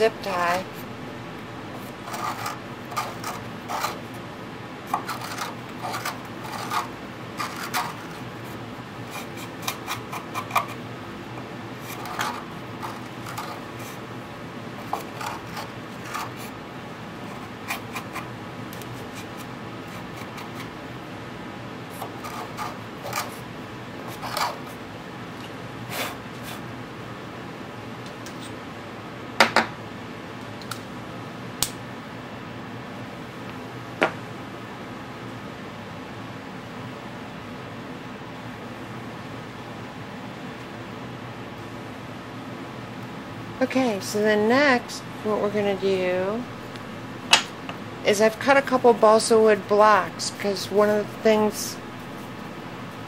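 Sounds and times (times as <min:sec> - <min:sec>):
steady room hum: 0:00.0 - 0:53.0
hand reamer scraping in wood: 0:01.8 - 0:04.0, 0:04.9 - 0:08.2, 0:14.8 - 0:16.6.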